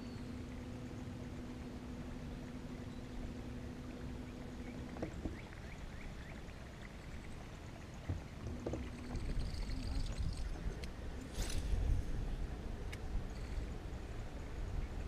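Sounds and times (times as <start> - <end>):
electric trolling motor humming: 0.0 - 15.0
wind and water rumble: 0.0 - 15.0
small knocks: 4.9 - 5.5, 8.0 - 9.4.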